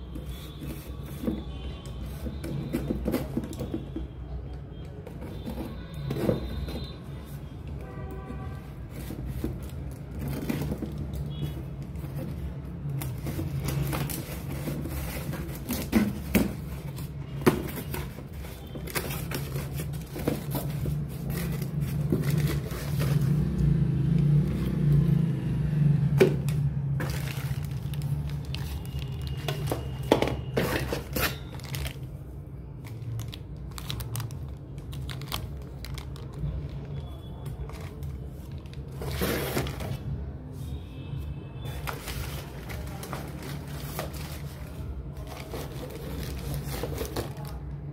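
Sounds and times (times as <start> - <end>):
plastic wrapping crinkling: 8.8 - 23.4, 26.4 - 40.2, 41.7 - 47.9
packing tape peeling and tearing: 32.9 - 36.5.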